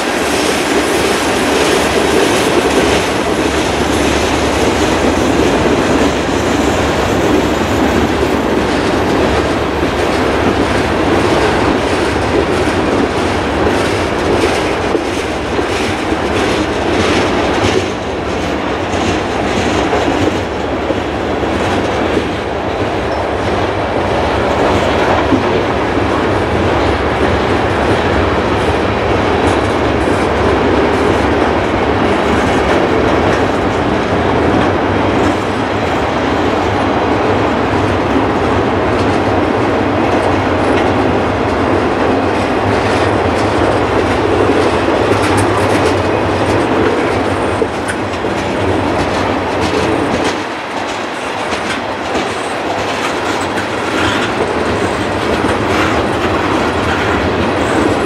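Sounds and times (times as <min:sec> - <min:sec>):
steel wheels rumbling on rails: 0:00.0 - 0:58.0
wheels clicking over rail joints: 0:37.8 - 0:58.0.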